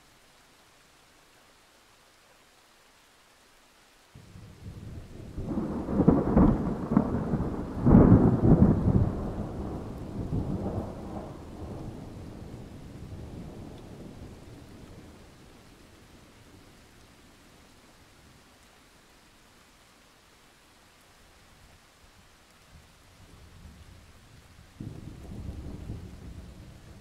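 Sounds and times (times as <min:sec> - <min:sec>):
faint hiss: 0:00.0 - 0:27.0
thunder rumbling: 0:04.2 - 0:15.3, 0:23.5 - 0:27.0.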